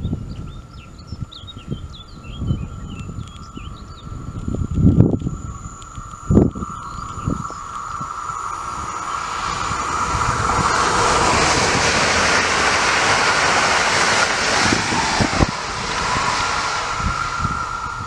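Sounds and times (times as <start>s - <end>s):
wheels on rails: 3.1s - 18.0s
train passing at speed: 6.3s - 18.0s.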